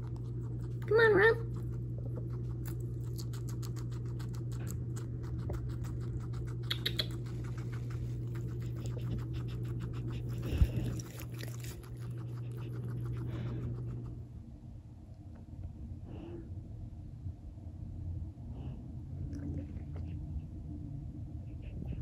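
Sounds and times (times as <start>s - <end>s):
guinea pig chewing greens: 0.0s - 14.5s
steady low hum: 0.0s - 22.0s.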